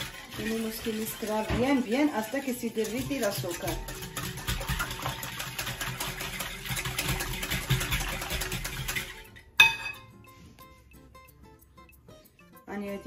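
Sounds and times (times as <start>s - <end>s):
utensil stirring in a bowl: 0.0s - 10.2s.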